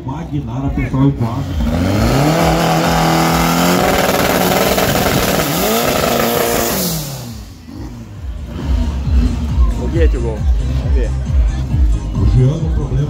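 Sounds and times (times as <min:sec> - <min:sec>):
car engine revving hard: 0:01.1 - 0:09.8
spinning tyres hissing: 0:01.2 - 0:09.5.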